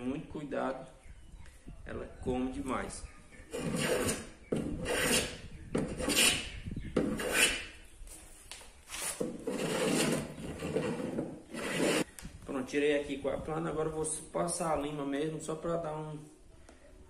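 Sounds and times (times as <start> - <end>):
hand plane trimming laminate: 3.5 - 6.4, 7.0 - 7.6, 9.4 - 12.1.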